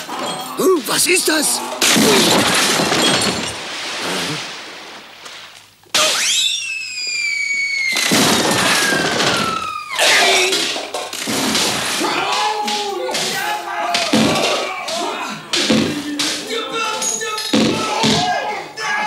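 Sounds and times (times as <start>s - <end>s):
cartoon stone crashing: 1.8s - 4.4s, 7.9s - 12.4s
falling whistle: 6.0s - 10.2s.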